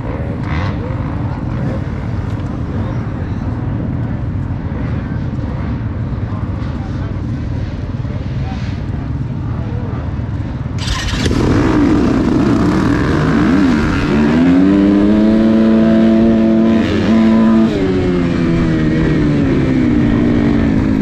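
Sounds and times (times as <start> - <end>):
dirt bike engines revving: 0.0 - 21.0
motorbike gear change: 10.8 - 11.4.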